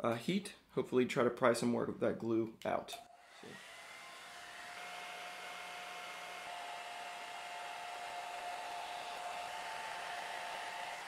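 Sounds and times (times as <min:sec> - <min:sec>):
hair dryer running: 0:03.0 - 0:11.0.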